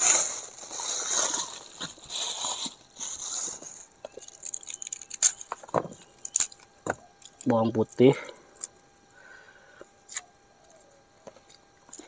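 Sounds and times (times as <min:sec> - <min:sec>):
plastic bag rustling: 0:00.0 - 0:06.8.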